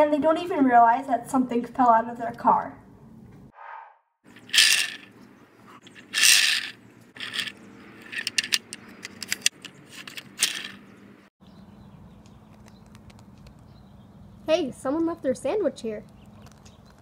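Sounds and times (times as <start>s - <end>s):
toy car wheels rattling on concrete: 4.3s - 5.1s, 5.8s - 10.8s.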